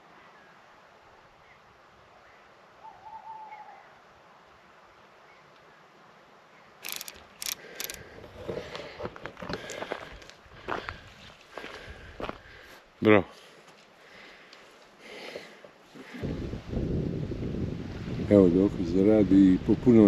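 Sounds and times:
owl hooting: 2.8s - 4.0s
footsteps through grass: 9.7s - 12.7s.

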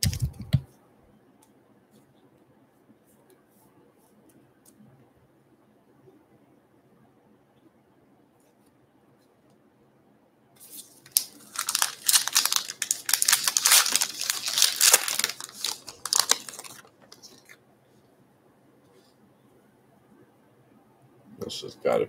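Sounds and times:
wrapper tearing and crinkling: 10.7s - 17.6s.

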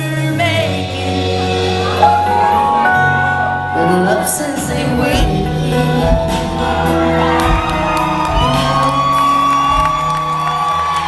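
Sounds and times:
woman singing: 0.0s - 10.1s
live country band: 0.0s - 11.0s
drums hitting: 1.2s - 11.0s
audience shouting and whooping: 6.6s - 11.0s.

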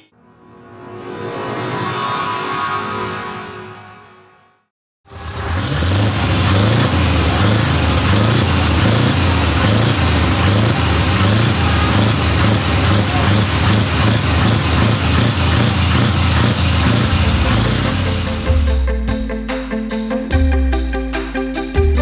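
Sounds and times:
diesel truck engine idling: 5.1s - 18.9s.

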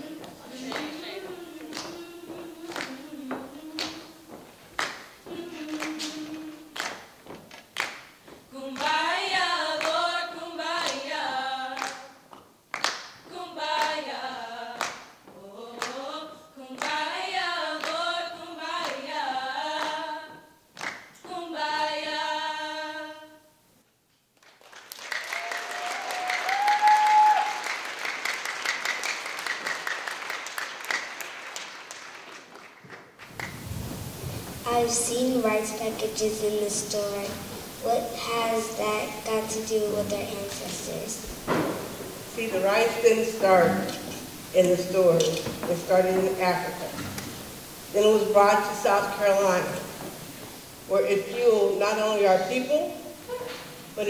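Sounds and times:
young voices singing a cappella: 0.0s - 7.1s, 8.5s - 12.3s, 13.2s - 23.5s, 34.4s - 54.0s
hand claps: 1.6s - 2.1s, 2.7s - 4.1s, 4.8s - 8.2s, 11.8s - 14.0s, 14.8s - 15.2s, 20.8s - 21.2s, 24.4s - 33.6s
audience applause: 24.4s - 33.9s
person whooping: 25.3s - 27.7s.

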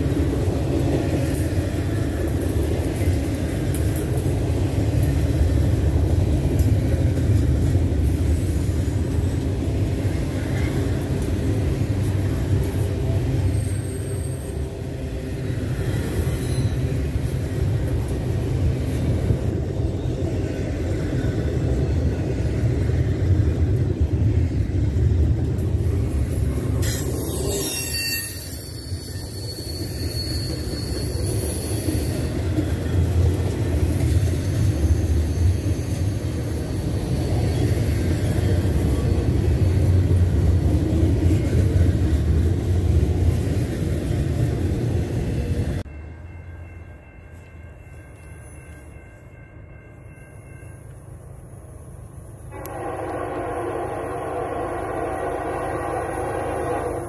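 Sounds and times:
train wheels rumbling on rails: 0.0s - 57.0s
high wheel squeal: 13.4s - 14.8s, 15.7s - 17.5s, 26.4s - 32.9s, 33.8s - 40.2s, 52.4s - 57.0s.

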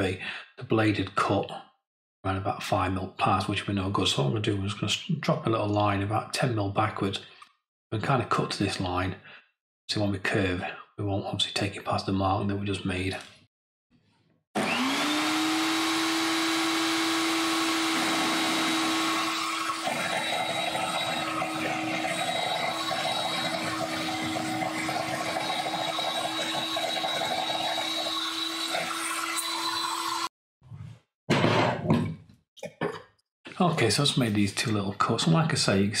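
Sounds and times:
saw blade cutting wood: 14.6s - 30.3s
table saw motor whine: 14.6s - 30.3s.

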